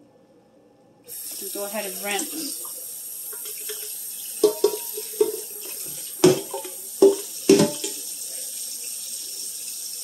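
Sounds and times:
tap water running into pot: 1.1s - 10.0s
metal pot clanking: 4.4s - 8.0s.

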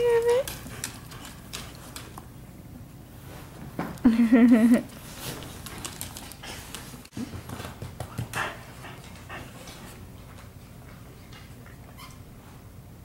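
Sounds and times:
dogs scuffling and playing: 0.0s - 2.4s, 4.9s - 12.7s.

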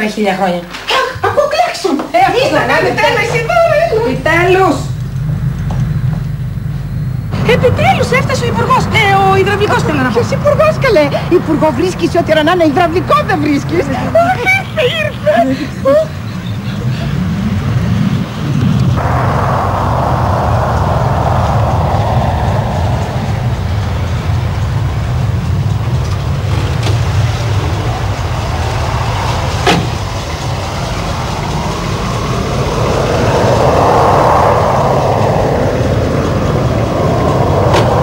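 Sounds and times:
car engine rumbling: 17.2s - 38.0s
rushing noise: 17.4s - 38.0s.

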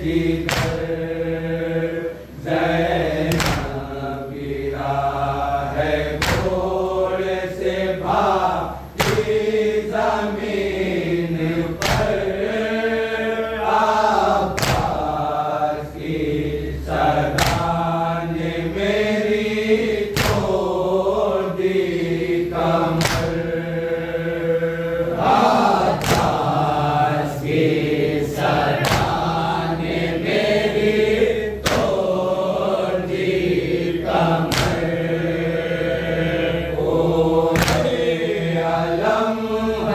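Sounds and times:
men chanting: 0.0s - 39.9s
sharp slaps: 0.4s - 1.2s, 3.1s - 4.1s, 6.0s - 7.2s, 8.9s - 9.7s, 11.8s - 12.5s, 14.4s - 15.2s, 17.2s - 18.0s, 20.0s - 20.8s, 22.8s - 23.7s, 25.5s - 27.3s, 28.6s - 29.4s, 31.6s - 32.3s, 34.2s - 35.1s, 37.5s - 38.4s.

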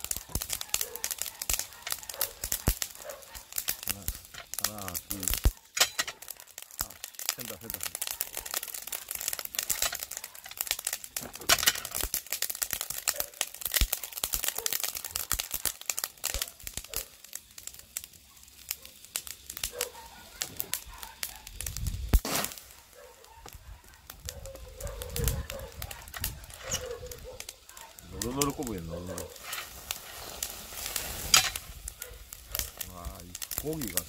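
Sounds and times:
fish grilling over charcoal crackling: 0.0s - 34.0s.

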